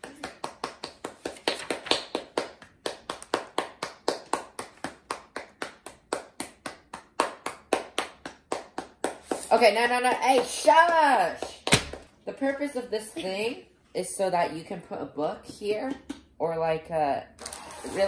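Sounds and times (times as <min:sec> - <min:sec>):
child clapping hands rapidly: 0:00.0 - 0:09.5.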